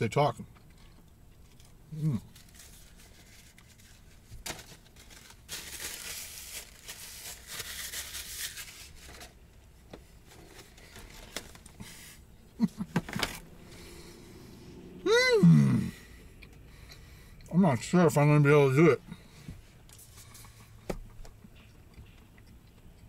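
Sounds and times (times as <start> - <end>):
paper wrapping rustling: 2.3 - 9.6, 10.2 - 12.1.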